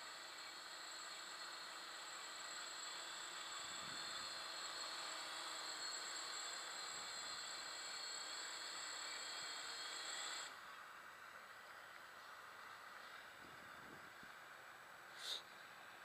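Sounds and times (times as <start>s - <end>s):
drone motors whining: 0.0s - 10.6s.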